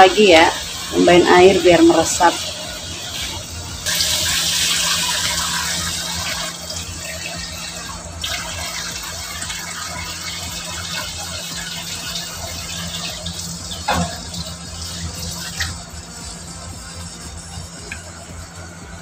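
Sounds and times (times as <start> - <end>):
pan sizzling and simmering: 0.0 - 19.0
water hissing in hot frying pan: 0.0 - 19.0.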